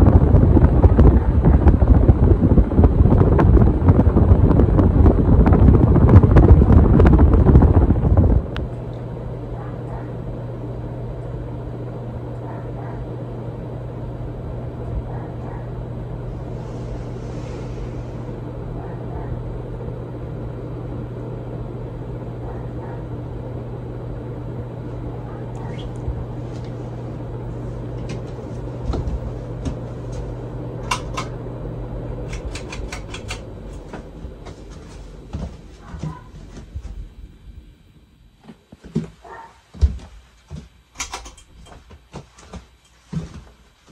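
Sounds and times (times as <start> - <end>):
wind noise on microphone: 0.0 - 8.9
ceiling fan motor humming: 0.0 - 43.9.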